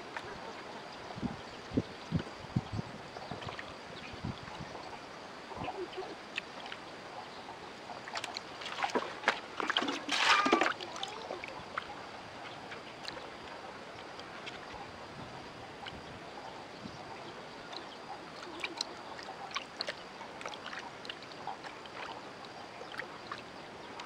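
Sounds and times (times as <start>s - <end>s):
water sloshing in basin: 8.0s - 14.9s, 17.2s - 24.0s.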